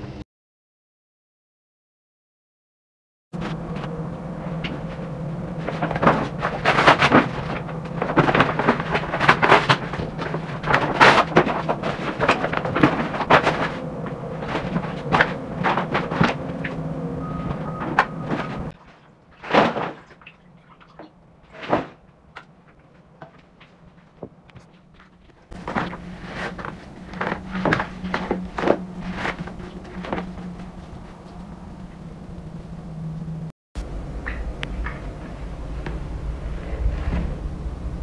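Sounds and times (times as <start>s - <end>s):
steady low hum: 3.4s - 38.0s
paper rustling and crackling: 4.5s - 16.9s, 17.5s - 20.2s, 21.5s - 31.5s.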